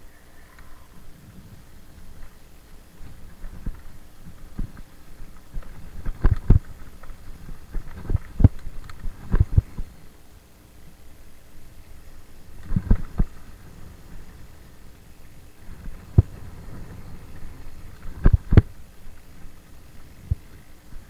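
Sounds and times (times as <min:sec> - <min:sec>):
bike tyres rumbling on dirt: 0:01.1 - 0:10.0, 0:12.1 - 0:21.0
bike knocking and rattling: 0:01.9 - 0:10.0, 0:12.6 - 0:21.0.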